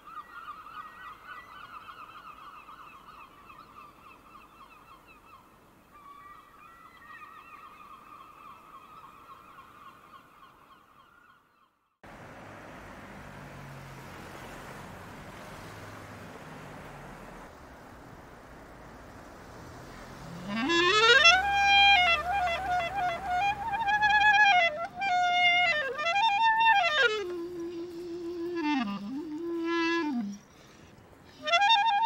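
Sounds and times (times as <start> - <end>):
street traffic noise: 12.0 - 32.0
gulls calling: 12.1 - 32.0.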